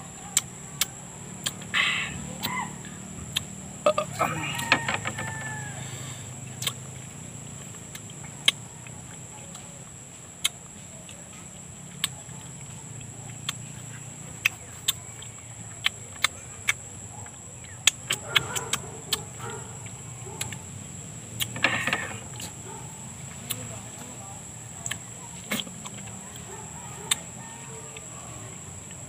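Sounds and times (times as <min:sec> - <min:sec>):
wet eating smacks and sucking: 0:24.8 - 0:26.1.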